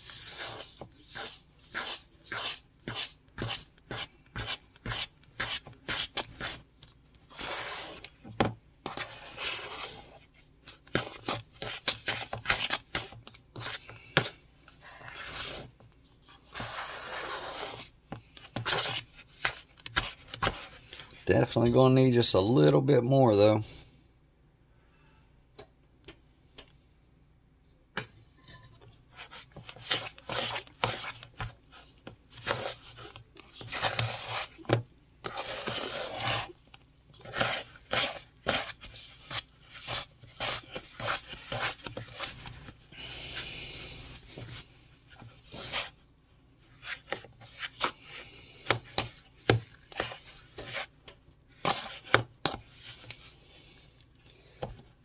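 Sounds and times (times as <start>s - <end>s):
spoon scraping dough in bowl: 0.0s - 21.8s, 28.1s - 43.4s, 44.0s - 46.0s, 46.6s - 53.4s.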